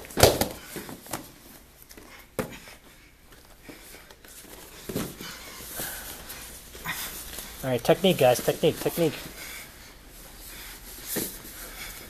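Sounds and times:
bodies scuffling on foam mats: 3.3s - 12.0s.

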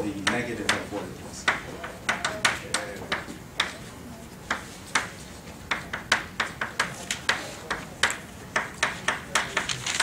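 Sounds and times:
chalk tapping on chalkboard: 0.2s - 9.8s.

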